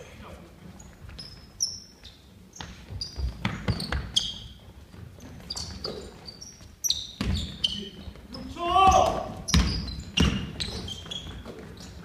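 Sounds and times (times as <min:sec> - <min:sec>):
sneakers squeaking: 0:00.5 - 0:12.0
basketball bouncing on wooden floor: 0:02.6 - 0:04.3, 0:07.2 - 0:07.7, 0:08.8 - 0:12.0.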